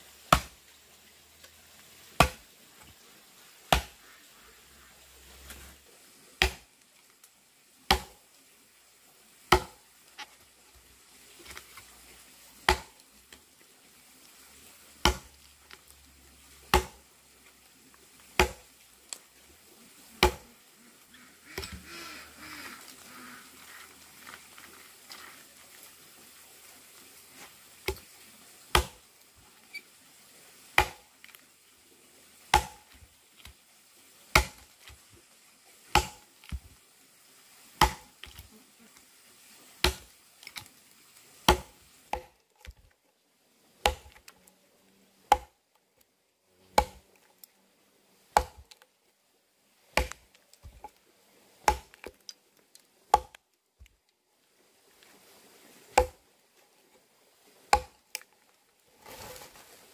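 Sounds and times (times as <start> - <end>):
axe chopping into wood: 0.3 - 0.6, 2.2 - 2.4, 3.7 - 4.0, 6.4 - 6.7, 7.9 - 8.2, 9.5 - 9.8, 12.6 - 13.0, 15.0 - 15.3, 16.7 - 17.0, 18.4 - 18.7, 20.2 - 20.5, 28.7 - 29.0, 30.8 - 31.0, 32.5 - 32.9, 34.3 - 34.7, 35.9 - 36.2, 37.8 - 38.3, 39.8 - 40.1, 41.5 - 42.3, 43.8 - 44.2, 45.3 - 45.6, 46.8 - 47.0, 48.4 - 48.7, 50.0 - 50.8, 51.6 - 52.0, 53.1 - 53.4, 56.0 - 56.2, 57.7 - 58.0.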